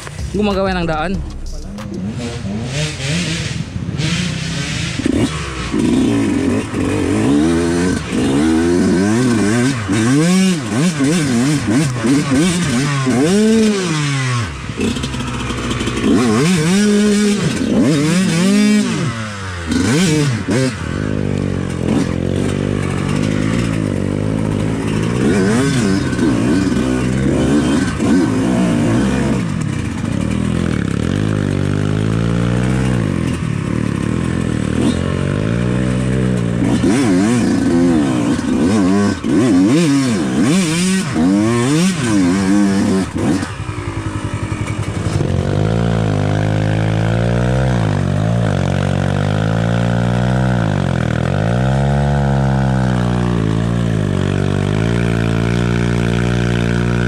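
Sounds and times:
clatter: 0.0s - 57.0s
dirt bike engine revving: 0.0s - 57.0s.

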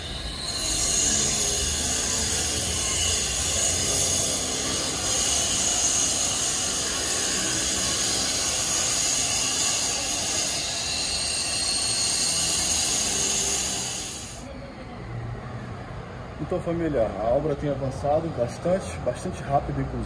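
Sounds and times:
loud hiss with high ringing: 0.0s - 14.5s.

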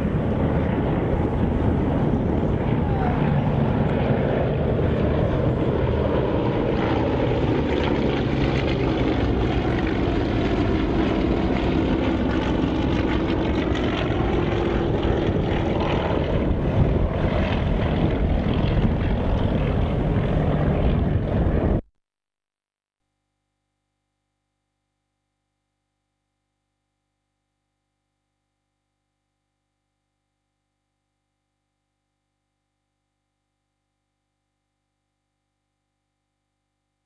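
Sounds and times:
propeller aircraft engine: 0.0s - 21.9s.

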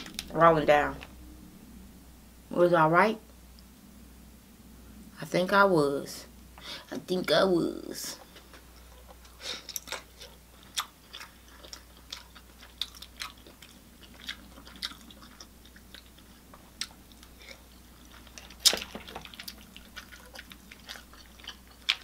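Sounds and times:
person chewing with crunches: 0.0s - 0.3s, 8.2s - 22.0s.

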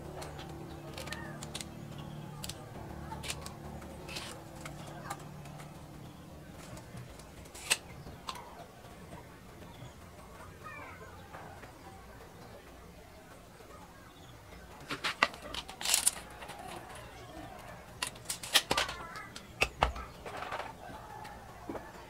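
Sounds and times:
wooden frame pieces clicking: 0.0s - 5.8s, 6.5s - 8.5s, 14.8s - 21.8s.

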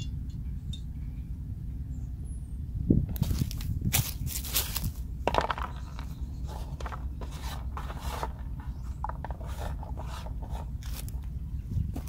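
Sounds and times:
steady low rumble: 0.0s - 12.0s
dry leaves rustling and scraping: 3.1s - 12.0s.

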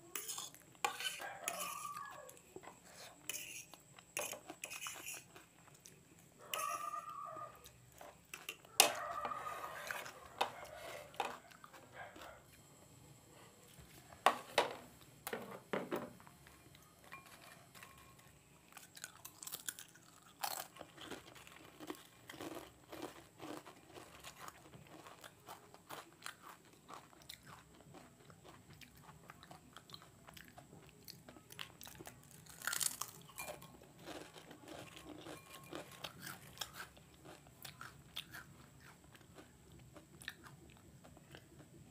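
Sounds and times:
chips crunching and chewing: 17.3s - 41.8s.

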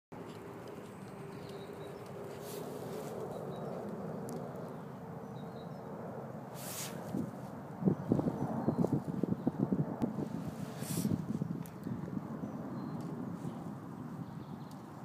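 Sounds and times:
small birds chirping: 0.3s - 6.0s, 7.8s - 9.6s, 10.7s - 15.0s.

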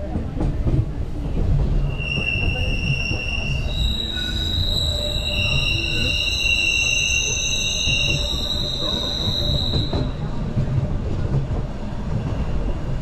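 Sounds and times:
low rumble of train running: 0.0s - 13.0s
train wheels squealing on rails: 1.6s - 10.7s.

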